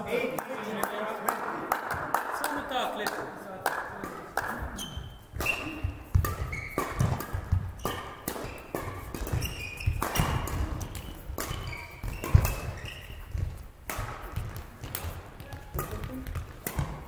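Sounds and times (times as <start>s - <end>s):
rackets hitting shuttlecock: 0.3s - 17.0s
shoes squeaking on court floor: 4.6s - 17.0s.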